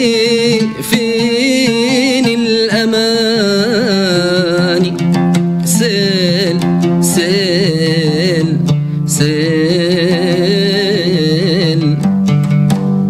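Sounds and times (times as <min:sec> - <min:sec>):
man singing melismatic notes: 0:00.0 - 0:12.4
oud playing: 0:00.0 - 0:13.0
man breathing: 0:08.7 - 0:09.1.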